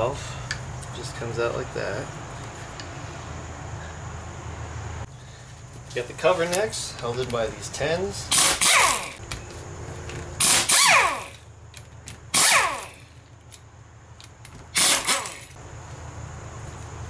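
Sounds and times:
power drill motor winding down: 10.4 - 11.4, 14.8 - 15.5.

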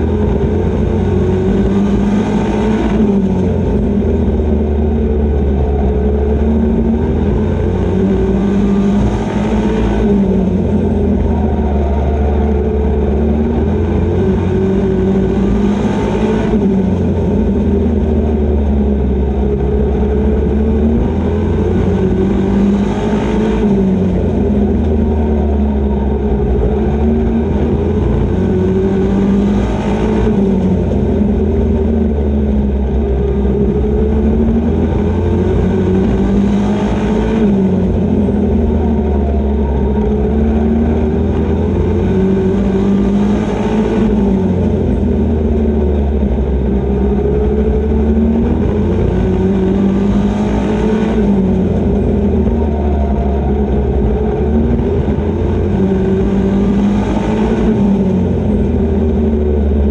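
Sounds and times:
race truck engine running hard: 0.0 - 59.9.

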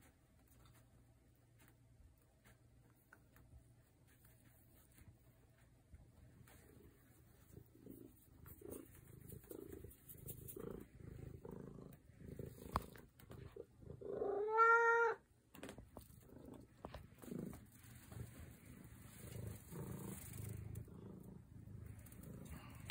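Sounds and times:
cat purring: 0.0 - 15.1, 15.8 - 22.9
cat meowing: 14.2 - 15.2.

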